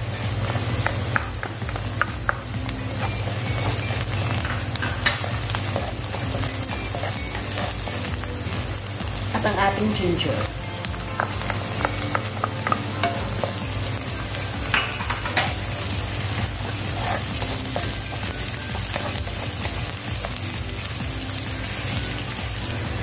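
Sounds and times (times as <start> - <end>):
vegetables sizzling in hot oil: 0.0 - 23.0
spatula scraping and tapping pan: 0.4 - 8.6, 10.8 - 20.4.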